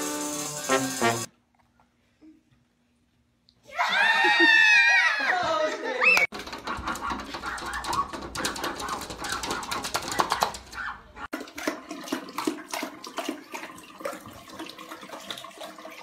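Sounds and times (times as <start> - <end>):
dogs lapping water: 6.3 - 16.0
tap water running: 6.3 - 16.0.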